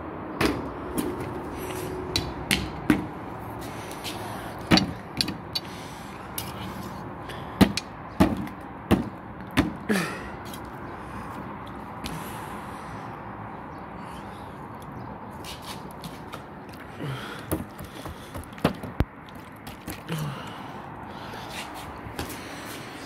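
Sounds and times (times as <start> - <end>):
sharp knocks and taps: 2.1 - 3.1.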